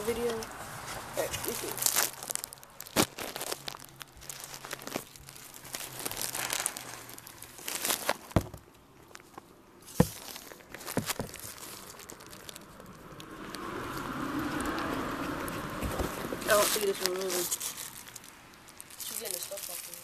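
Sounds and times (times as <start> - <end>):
phone handling rustle: 1.7 - 12.6.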